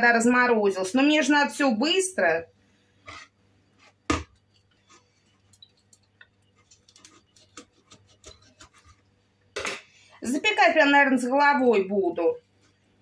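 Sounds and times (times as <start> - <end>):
knife ticks and scrapes: 3.1 - 9.0.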